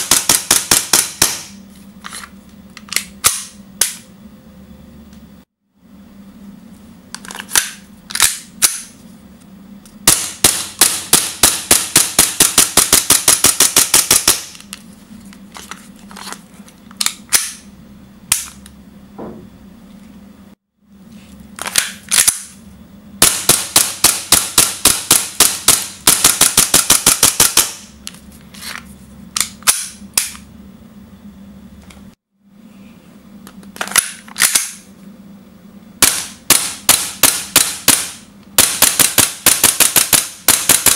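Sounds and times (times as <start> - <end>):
airsoft pistol firing: 10.1 - 14.6, 23.2 - 27.9, 36.0 - 40.9.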